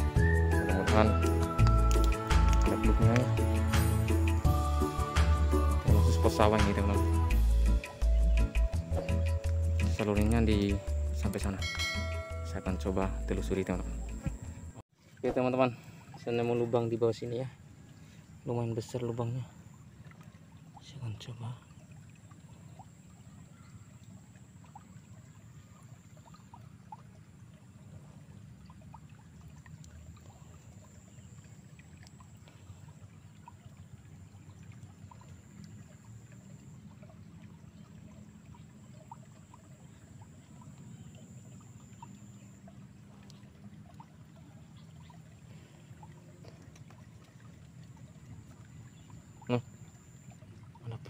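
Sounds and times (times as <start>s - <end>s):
water trickling in a ditch: 0.0s - 51.0s
faint small ticks: 1.6s - 3.3s, 29.6s - 33.6s, 41.8s - 44.0s, 46.0s - 47.4s
thin steady high tone: 11.4s - 14.8s.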